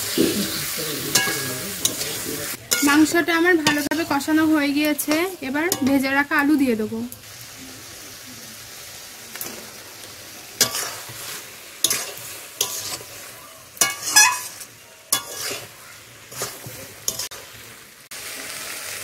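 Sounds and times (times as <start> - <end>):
meat and potatoes sizzling: 0.0 - 19.0
metal spatula scraping pan: 0.1 - 6.1, 10.6 - 17.4.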